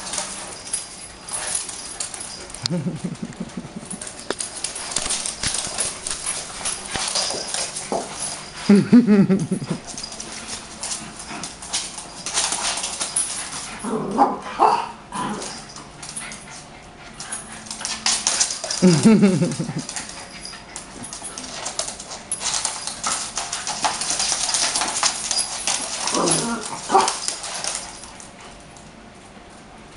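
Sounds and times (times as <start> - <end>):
dogs growling: 13.2 - 17.9, 25.6 - 27.8
dogs yipping: 16.3 - 28.1.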